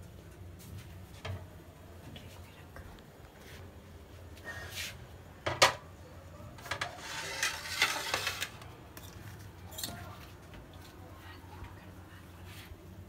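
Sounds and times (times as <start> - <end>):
glasses scraping and knocking: 6.6 - 9.2.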